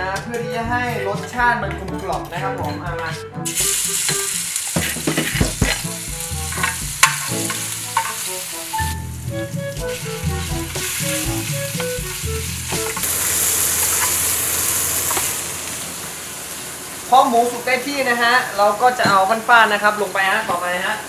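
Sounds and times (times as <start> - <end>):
food sizzling in hot oil: 3.4 - 21.0
utensils knocking against pan: 4.1 - 8.3.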